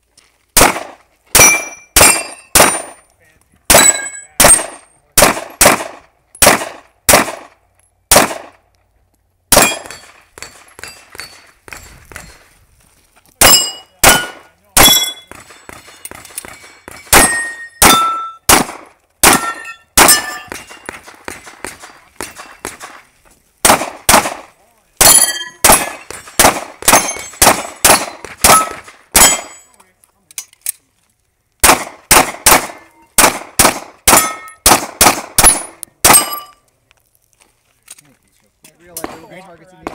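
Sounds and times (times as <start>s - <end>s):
pistol shots: 0.6s - 3.0s, 3.7s - 8.6s, 9.5s - 11.8s, 13.4s - 23.0s, 23.6s - 29.7s, 31.6s - 36.5s, 39.0s - 39.9s
metallic clangs of steel targets: 0.7s - 3.1s, 3.7s - 6.8s, 9.5s - 12.3s, 13.4s - 23.0s, 25.0s - 30.8s, 31.7s - 36.6s.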